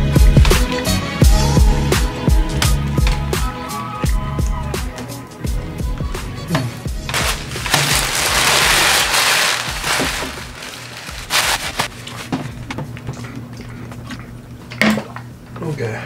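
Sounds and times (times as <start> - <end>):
background music: 0.0 - 12.0
paper wrapper crinkling: 7.1 - 12.4.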